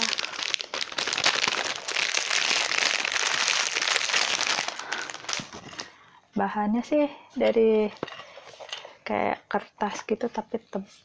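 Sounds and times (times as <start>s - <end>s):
plastic wrapper crinkling: 0.0s - 6.0s.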